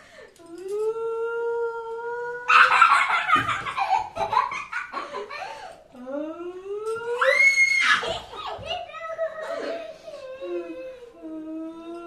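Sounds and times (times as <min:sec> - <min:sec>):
child laughing: 0:02.5 - 0:05.6, 0:07.9 - 0:10.8.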